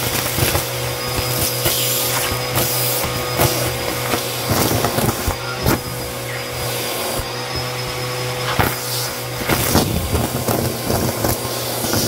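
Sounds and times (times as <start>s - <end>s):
debris clicking up vacuum hose: 0.0s - 6.0s, 8.3s - 12.0s
vacuum cleaner running: 0.0s - 12.0s.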